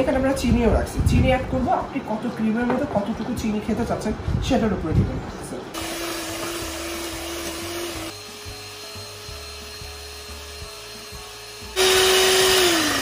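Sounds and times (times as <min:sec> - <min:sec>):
electric hand mixer whining: 0:05.8 - 0:13.0.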